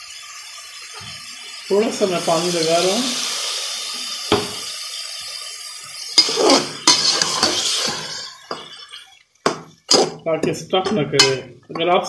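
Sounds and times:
water splashing into pot: 0.0 - 11.8
metal spoon scraping pot: 6.2 - 9.1, 9.9 - 10.2.

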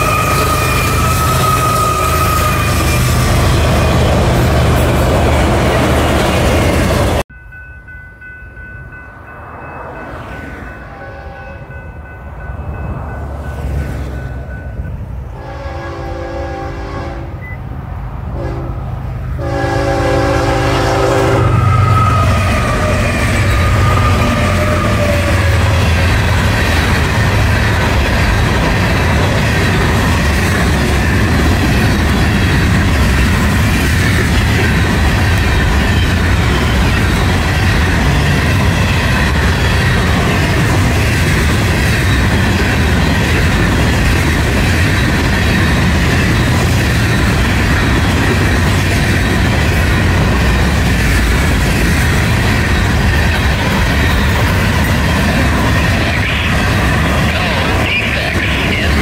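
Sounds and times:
freight train rumbling past: 0.0 - 59.0
train horn blasts: 10.8 - 11.8, 15.3 - 17.4, 18.4 - 26.0.

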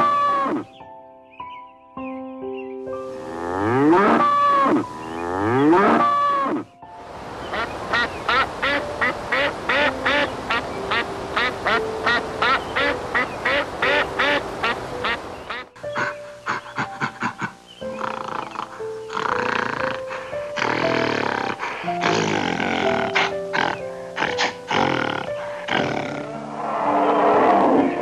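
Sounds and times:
light background music: 0.0 - 28.0
cow mooing: 3.2 - 6.6, 20.6 - 26.4
duck quacking: 3.9 - 4.9, 7.5 - 19.3, 20.1 - 26.1.

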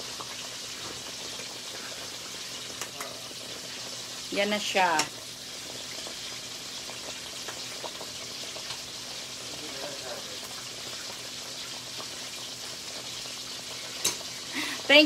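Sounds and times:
sizzling hiss with faint pops: 0.0 - 15.0
stew bubbling in a pot: 0.0 - 15.0.

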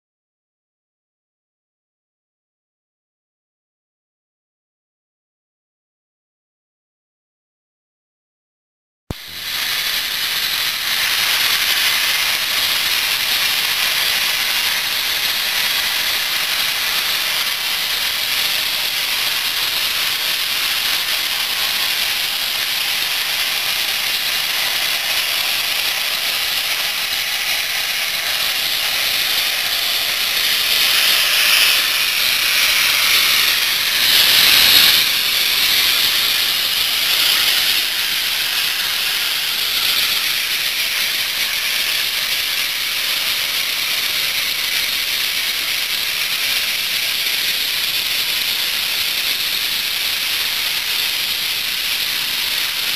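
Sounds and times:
steam locomotive hissing steam: 9.1 - 52.9.

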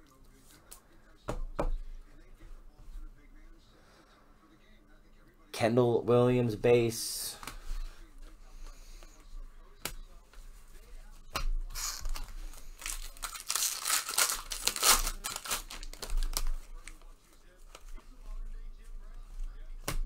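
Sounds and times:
wrapper tearing and crinkling: 11.8 - 16.9.

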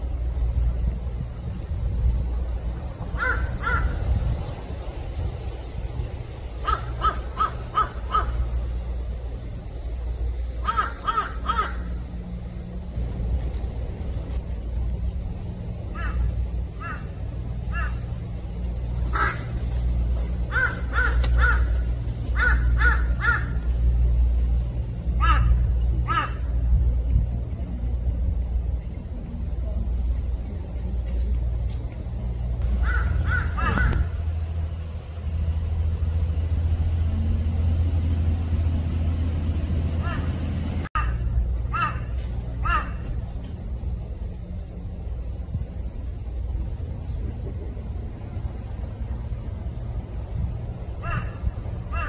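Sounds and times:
higher engine hum: 0.0 - 52.0
steady low rumble: 0.0 - 52.0
high arching animal calls: 3.1 - 4.2, 6.5 - 8.9, 10.5 - 12.3, 15.8 - 26.7, 32.6 - 34.2, 39.9 - 43.2.

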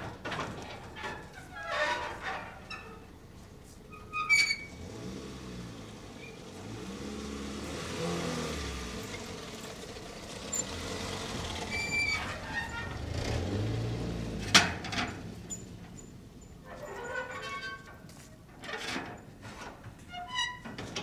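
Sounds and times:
vehicle engine running: 4.8 - 14.6.

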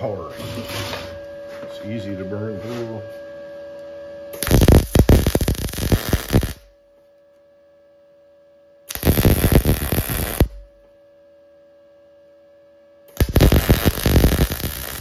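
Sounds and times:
steady hum: 0.0 - 15.0
welding arc crackling: 4.4 - 6.7, 8.9 - 10.6, 13.1 - 15.0.

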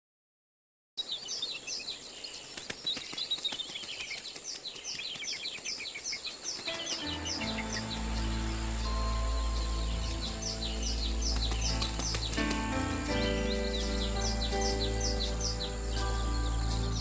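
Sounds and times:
birds chirping: 1.0 - 17.0
low sustained music notes: 6.5 - 17.0.

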